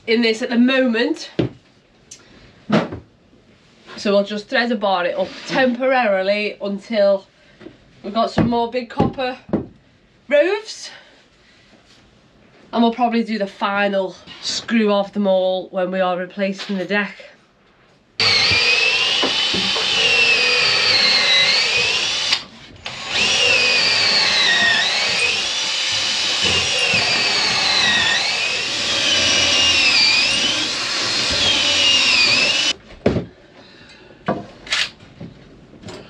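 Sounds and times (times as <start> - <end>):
power drill boring through timber: 18.2 - 32.8.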